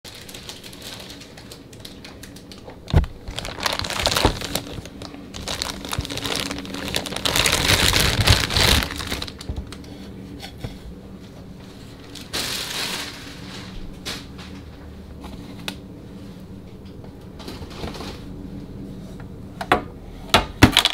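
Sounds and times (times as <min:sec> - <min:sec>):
plastic bag crinkling: 0:00.1 - 0:09.8, 0:12.0 - 0:13.8.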